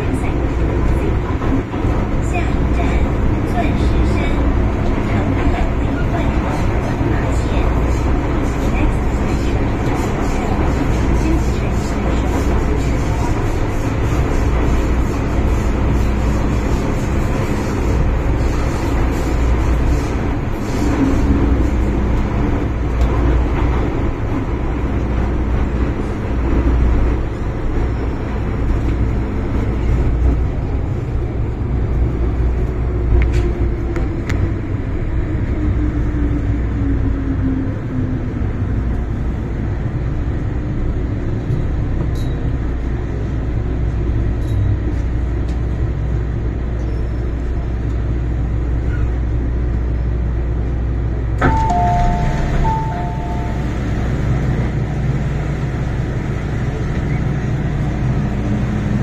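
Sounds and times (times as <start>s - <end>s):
train running rumble: 0.0s - 59.0s
train braking whine: 51.4s - 54.3s.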